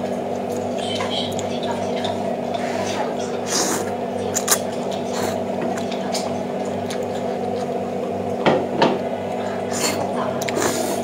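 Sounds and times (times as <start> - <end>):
steady low hum: 0.0 - 11.0
noodles slurped and chewed: 9.6 - 11.0.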